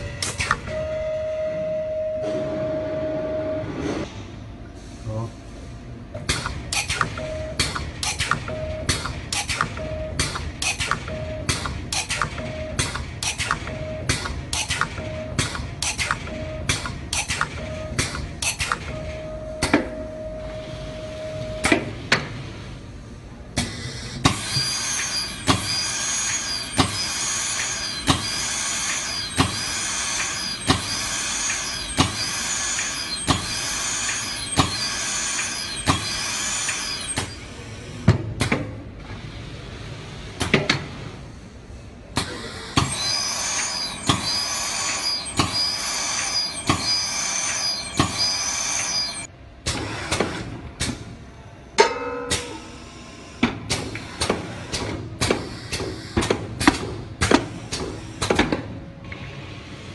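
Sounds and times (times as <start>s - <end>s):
machine hiss and whine: 2.2s - 59.9s
sharp machine clacks: 24.3s - 37.5s, 42.2s - 49.3s.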